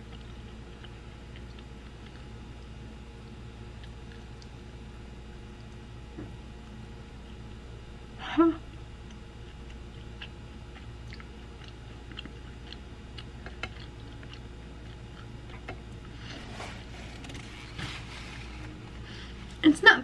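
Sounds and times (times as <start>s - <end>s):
person chewing with mouth closed: 0.0s - 2.7s, 3.7s - 4.6s, 9.0s - 16.4s
steady low hum: 0.0s - 20.0s.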